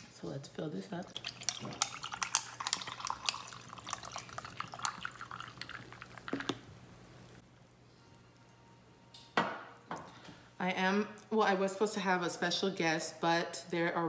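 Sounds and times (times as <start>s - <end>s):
ice crackling and clinking: 1.2s - 6.5s
drink poured over ice: 1.2s - 6.6s.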